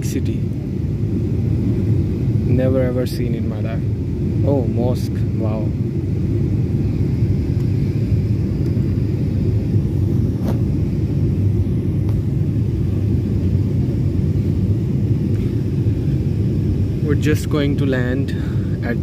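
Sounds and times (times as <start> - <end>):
airliner cabin rumble: 0.0 - 19.0.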